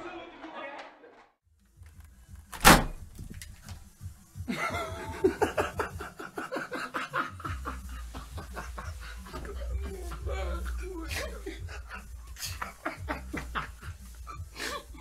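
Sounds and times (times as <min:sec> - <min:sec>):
person speaking: 0:08.0 - 0:13.8.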